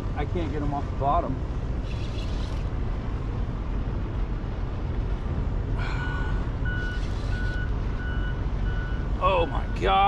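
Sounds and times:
wind: 0.0 - 10.0
electronic beeping: 6.7 - 9.0.

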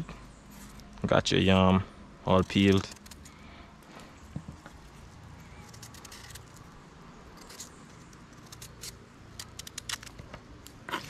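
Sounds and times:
utensils clicking and scraping: 2.4 - 3.4, 7.4 - 10.2.

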